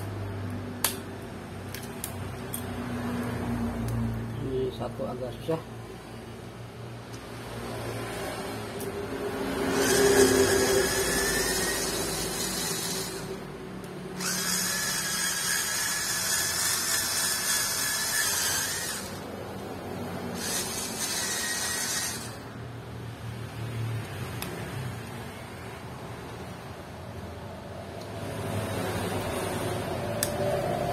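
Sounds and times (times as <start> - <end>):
cordless screwdriver whining: 9.7 - 13.4, 14.2 - 19.2, 20.4 - 22.5.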